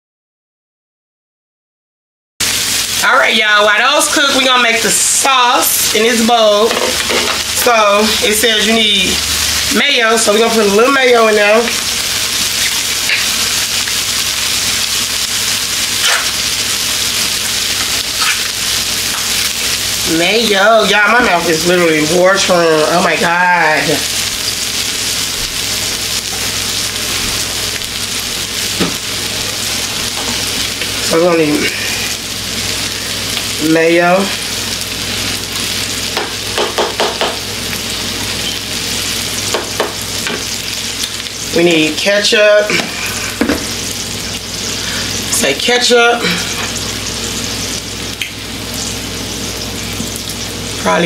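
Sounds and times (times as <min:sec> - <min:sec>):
food sizzling in a pan: 0:02.4 - 0:51.0.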